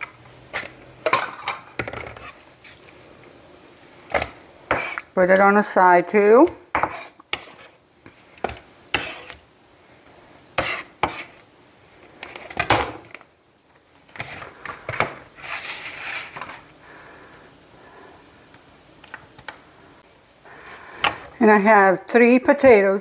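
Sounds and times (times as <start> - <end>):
rustling scrape: 6.8 - 8.3, 9.0 - 9.4, 14.2 - 16.7.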